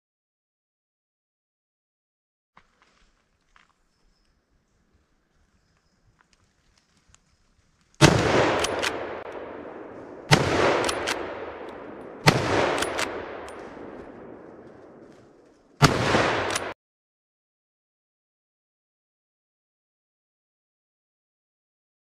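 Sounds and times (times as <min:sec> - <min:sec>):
rifle shots with echo: 0:08.0 - 0:16.8
rifle bolt clicks: 0:08.4 - 0:09.6, 0:10.3 - 0:14.9, 0:15.8 - 0:16.7.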